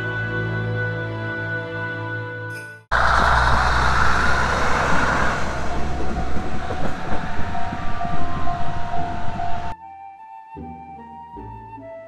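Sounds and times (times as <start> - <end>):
railcar passing: 2.9 - 9.8
wheels knocking on rail joints: 2.9 - 9.8.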